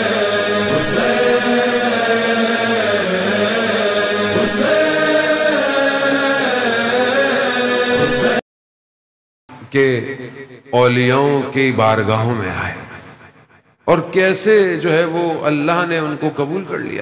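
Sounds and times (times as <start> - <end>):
chant-like voices over drone: 0.0 - 8.4.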